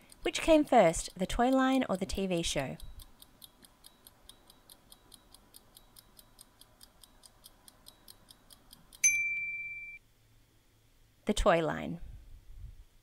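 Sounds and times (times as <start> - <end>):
timer ticking: 0.0 - 10.0.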